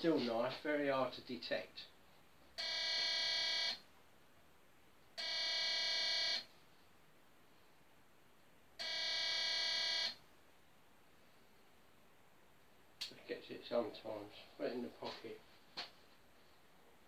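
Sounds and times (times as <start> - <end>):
metal detector alarm buzzing: 8.8 - 10.2.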